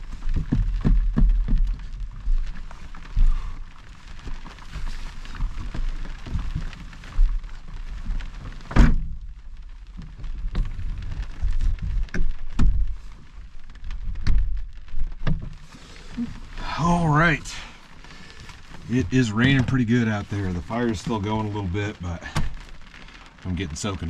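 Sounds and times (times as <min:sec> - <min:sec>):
thumps and knocks: 0:00.0 - 0:03.4, 0:10.0 - 0:13.0, 0:13.9 - 0:15.6
heavy rain hiss: 0:00.0 - 0:24.0.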